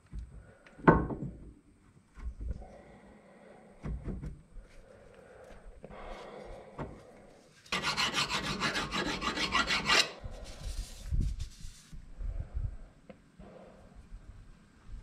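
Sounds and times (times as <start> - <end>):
soft wiping rub: 7.4 - 12.0
hand rasping rusted metal: 7.7 - 10.2.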